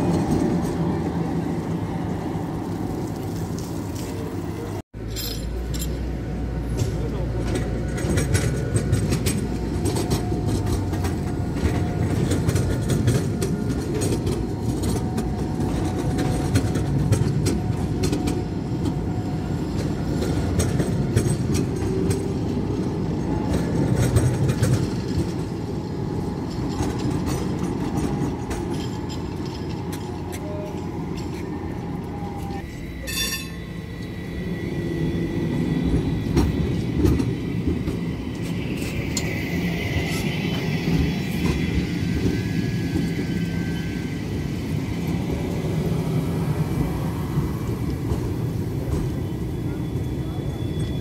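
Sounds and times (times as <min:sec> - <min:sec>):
tram rumbling on rails: 0:00.0 - 0:51.0.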